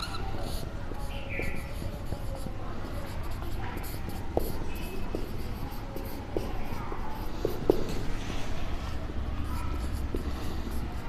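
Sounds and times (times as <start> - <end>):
marker tip squeaking: 0.0 - 6.7
marker scratching on whiteboard: 0.0 - 11.0.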